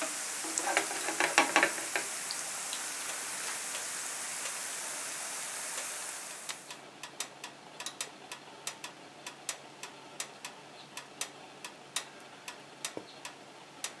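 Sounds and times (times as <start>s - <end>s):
oil crackles and pops: 0.0s - 3.8s
slices sizzling in frying oil: 0.0s - 6.8s.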